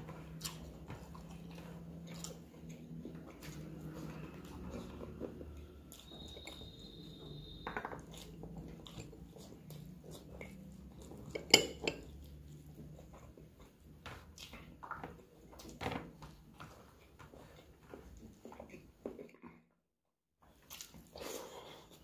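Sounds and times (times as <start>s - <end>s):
glass bowl clinking: 11.4s - 12.1s.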